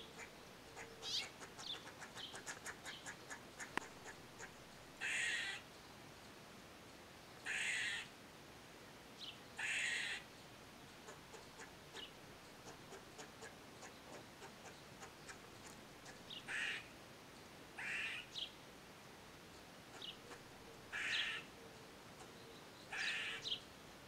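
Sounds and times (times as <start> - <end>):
squirrel harsh nasal calls: 0.2 - 5.6, 7.4 - 8.1, 9.6 - 10.3, 11.0 - 16.9, 17.8 - 18.4, 19.9 - 21.5, 22.9 - 23.6
faint quick clicks: 3.6 - 3.9.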